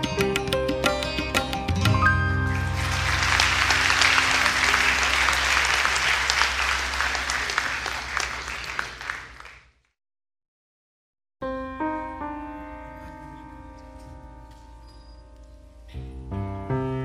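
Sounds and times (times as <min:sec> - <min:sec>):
piano music: 0:00.0 - 0:07.3, 0:11.4 - 0:17.0
audience applause: 0:02.5 - 0:09.8.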